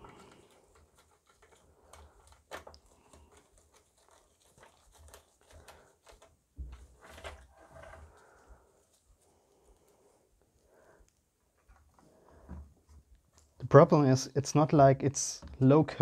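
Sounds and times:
light clicks and rustles: 0.0s - 10.2s.

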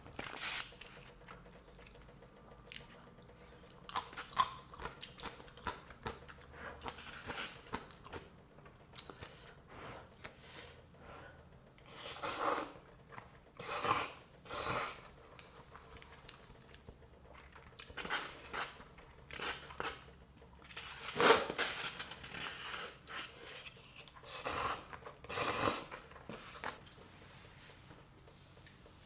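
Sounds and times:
chewing: 0.2s - 9.6s
slurping noodles: 13.6s - 15.1s, 20.7s - 26.8s.

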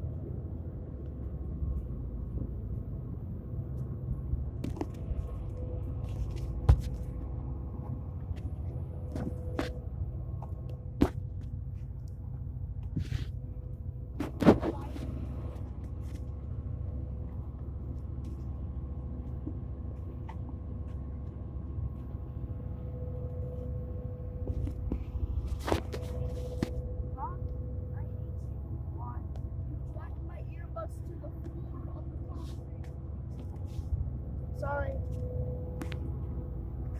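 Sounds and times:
low engine rumble: 0.0s - 36.9s.

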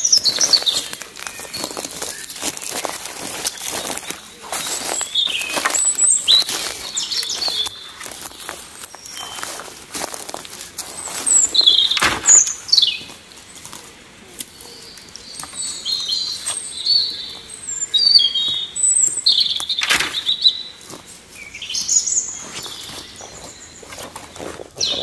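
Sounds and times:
small birds chirping: 0.0s - 25.0s
sharp woody knocks: 12.0s - 12.4s.

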